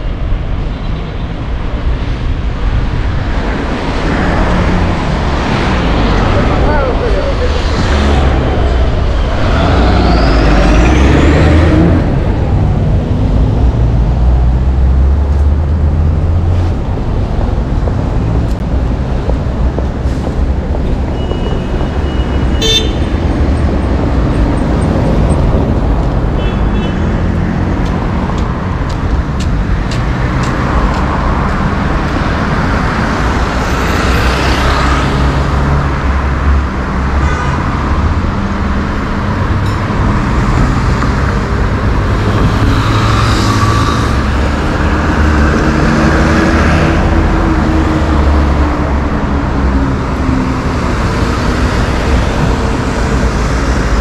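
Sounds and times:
car engines passing: 0.0 - 54.0
low road rumble: 0.0 - 54.0
car horn toots: 21.2 - 23.1.

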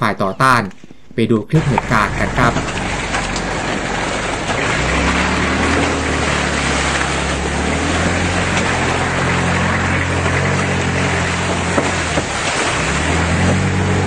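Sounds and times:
wind: 0.0 - 14.0
vehicle engine running: 1.6 - 14.0.

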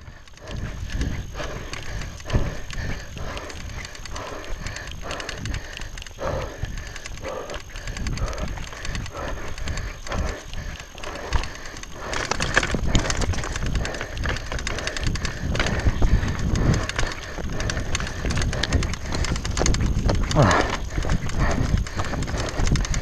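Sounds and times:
bike chain and frame rattling: 0.0 - 23.0
wind noise on microphone: 0.0 - 23.0
tyres crunching over stones: 10.8 - 23.0.

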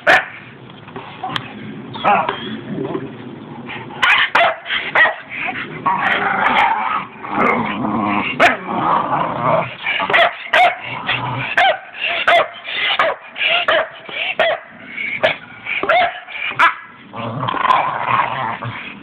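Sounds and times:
dogs barking and yipping: 0.0 - 0.5, 3.7 - 7.6, 9.7 - 17.0
dogs play-growling: 4.7 - 10.1, 10.8 - 19.0.

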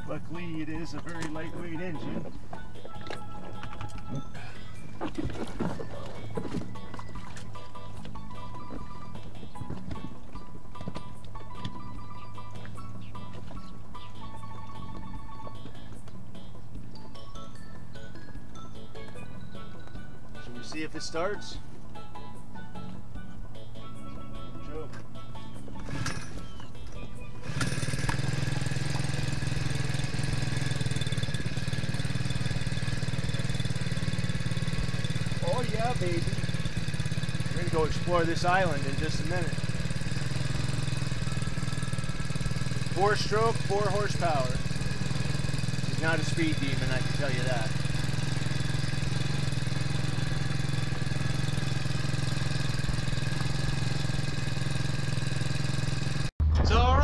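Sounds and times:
outboard motor running: 25.8 - 56.3.

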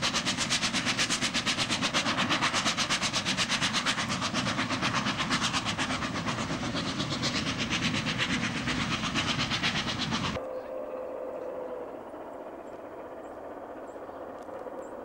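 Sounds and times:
steam locomotive chuffing: 0.0 - 10.4.

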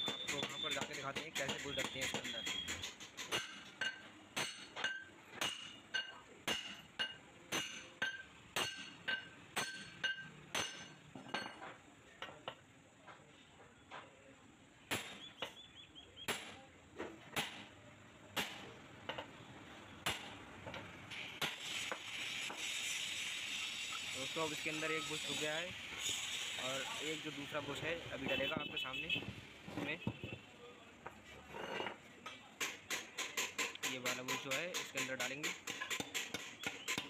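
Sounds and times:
hammer striking steel plate: 0.0 - 11.6, 20.0 - 20.4, 32.6 - 37.0.

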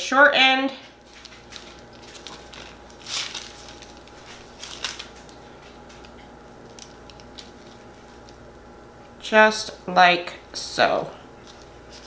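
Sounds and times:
parchment paper crinkling: 1.0 - 8.8, 11.4 - 12.0.

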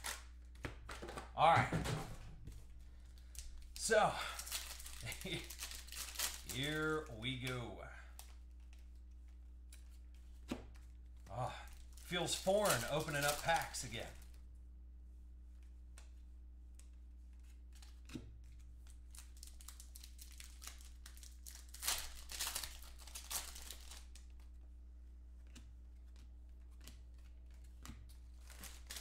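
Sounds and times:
foil packs tearing and crinkling: 0.0 - 0.2, 3.2 - 7.1, 11.7 - 14.3, 19.1 - 24.2, 28.4 - 29.0.

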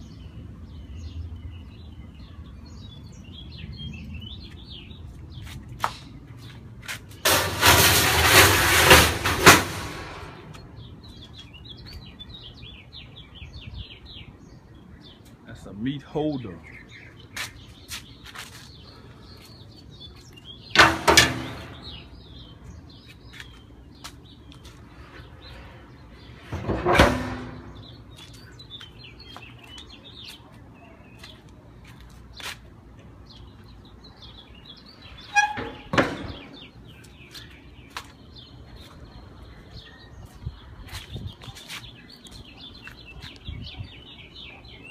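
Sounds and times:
small birds chirping: 0.0 - 7.3, 10.3 - 44.9
loud metal clanks ringing: 7.2 - 10.5, 20.8 - 22.1.

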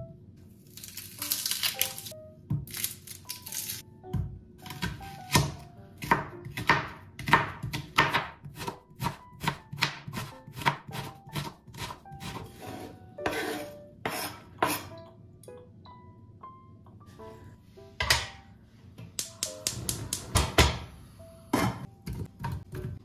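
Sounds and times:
knife chopping on plastic board: 4.2 - 12.5
knife scraping cutting board: 10.6 - 14.9.

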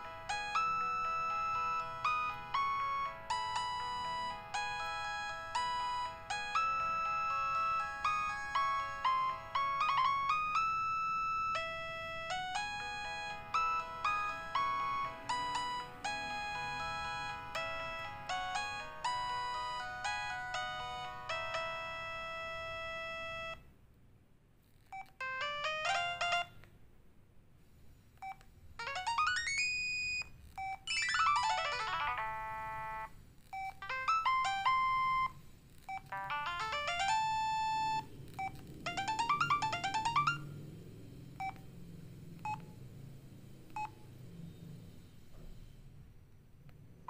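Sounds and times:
electronic ringtone arpeggios: 0.0 - 23.6, 25.2 - 26.5, 28.8 - 30.2, 30.9 - 33.1, 33.7 - 35.4, 36.1 - 40.5.

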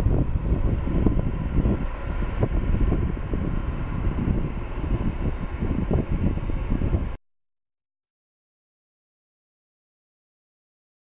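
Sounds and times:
airliner jet engines roaring: 0.0 - 7.2.

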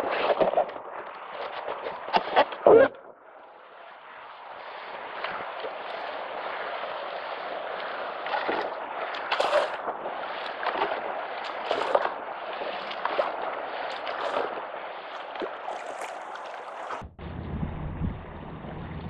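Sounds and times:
paddle splashing: 0.0 - 17.1
river water rushing: 3.5 - 17.0.

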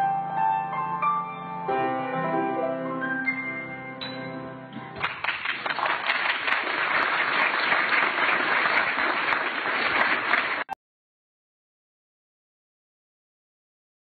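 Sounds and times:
piano notes: 0.0 - 5.2
audience applauding: 5.0 - 10.8.

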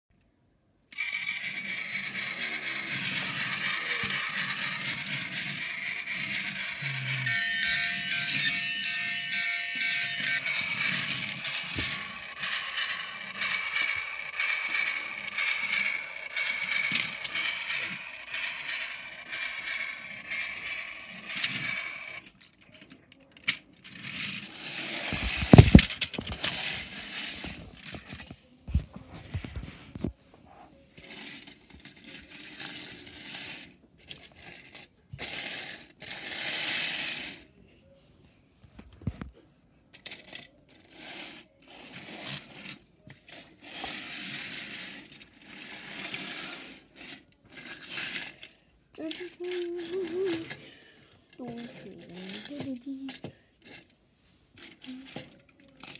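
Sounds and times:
toy locomotive motor whirring: 0.9 - 28.3, 30.9 - 37.5, 39.9 - 53.9, 54.6 - 55.9
plastic toy clattering on tiles: 7.8 - 30.1, 31.0 - 37.4, 39.9 - 54.0, 54.6 - 55.9.

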